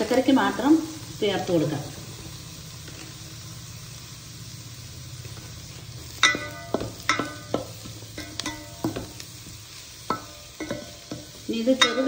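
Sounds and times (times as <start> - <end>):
vegetables stir-frying in a pan: 0.0 - 12.0
metal spoon knocking pan: 6.2 - 9.2, 10.0 - 12.0.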